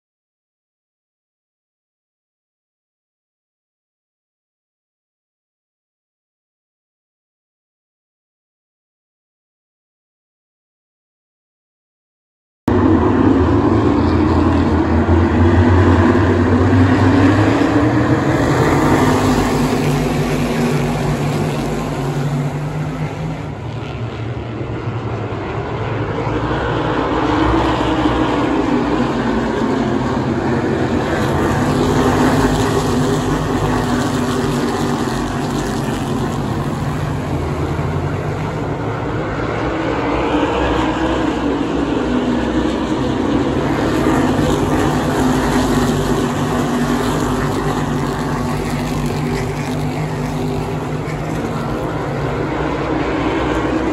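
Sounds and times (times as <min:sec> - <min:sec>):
race car engines roaring: 0:12.7 - 0:53.9.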